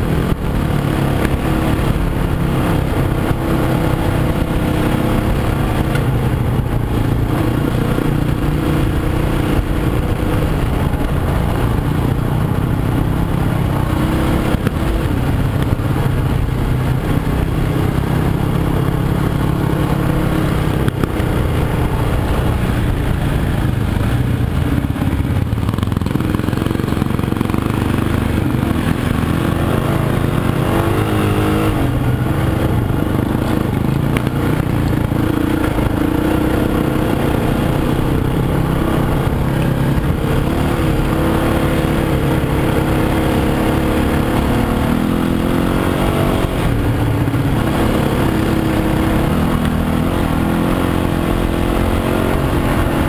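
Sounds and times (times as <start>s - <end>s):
off-road motorcycle engine: 0.0s - 53.0s.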